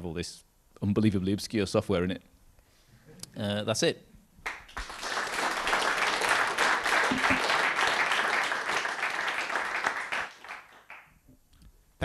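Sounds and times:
audience applauding: 4.4 - 11.1.

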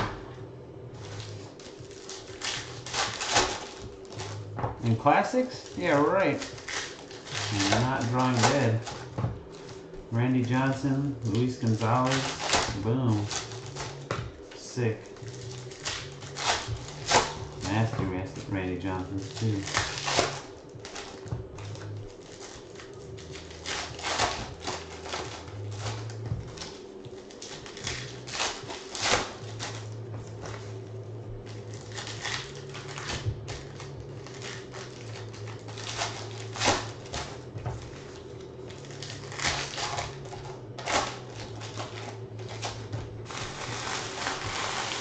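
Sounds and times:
foil wrappers crinkling and tearing: 0.9 - 45.0
cards being handled: 1.0 - 45.0.

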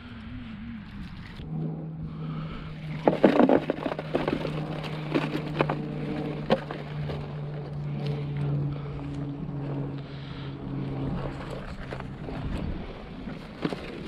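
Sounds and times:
steady low hum: 0.0 - 14.0
net rattling and knocking: 2.9 - 7.3.

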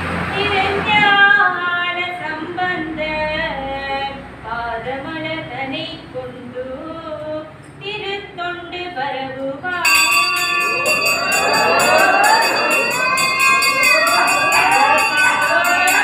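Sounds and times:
temple bells ringing rapidly: 9.8 - 16.0
group singing devotional chant: 10.4 - 16.0.

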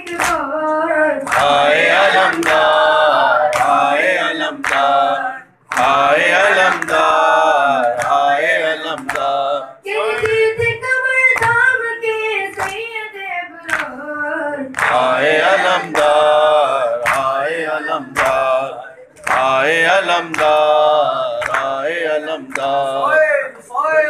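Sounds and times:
young men chanting in unison: 1.3 - 9.8, 14.8 - 24.0.

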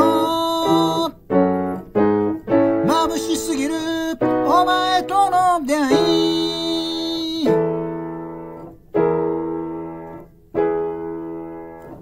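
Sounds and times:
piano chords ringing: 0.0 - 12.0.

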